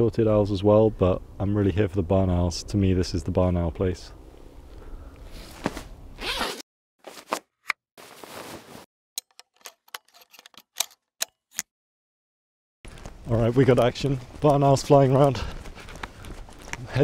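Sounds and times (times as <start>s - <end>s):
rustling of gloved hands: 8.0s - 8.9s, 12.9s - 17.0s
camera parts clicking: 9.2s - 11.6s.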